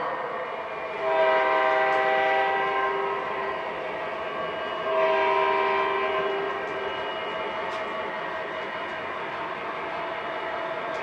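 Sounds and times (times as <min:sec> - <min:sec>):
model train horn blast: 0:01.0 - 0:03.1, 0:04.9 - 0:06.6.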